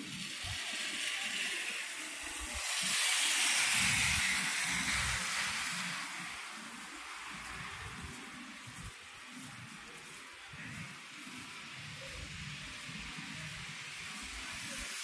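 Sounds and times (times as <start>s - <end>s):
tyres hissing on slushy street: 0.0s - 15.0s.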